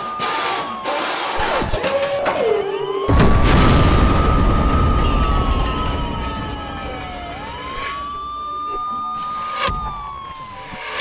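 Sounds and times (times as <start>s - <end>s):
emergency vehicle siren wailing: 0.0s - 11.0s
explosion boom: 3.1s - 8.4s.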